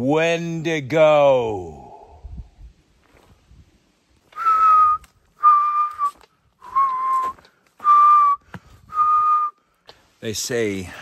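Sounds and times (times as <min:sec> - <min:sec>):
man whistling slow tune: 0:04.3 - 0:09.6.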